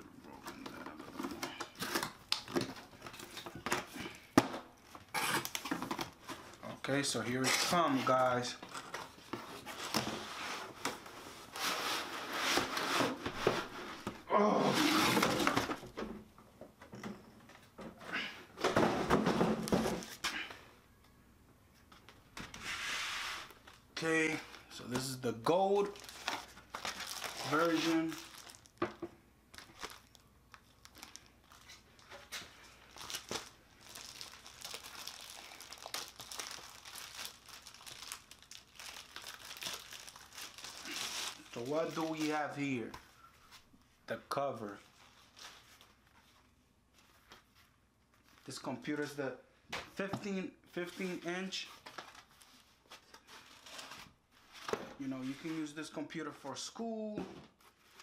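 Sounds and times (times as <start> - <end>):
plastic bag crinkling: 25.7 - 28.8, 29.5 - 42.4.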